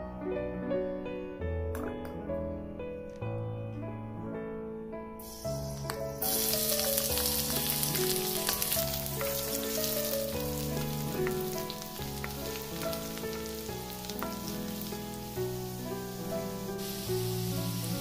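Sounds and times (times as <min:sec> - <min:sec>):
garlic sizzling in hot oil: 0:05.2 - 0:18.0.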